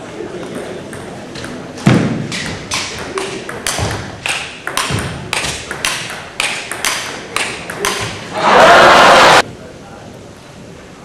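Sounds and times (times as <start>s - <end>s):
table tennis ball hits: 0.4s - 8.3s.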